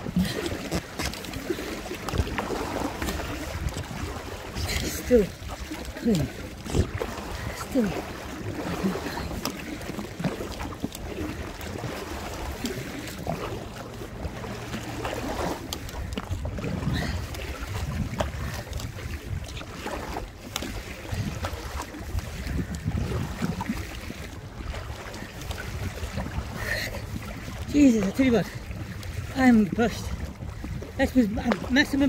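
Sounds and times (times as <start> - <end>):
water splashing and sloshing: 0.0 - 32.0
wind buffeting microphone: 0.0 - 32.0.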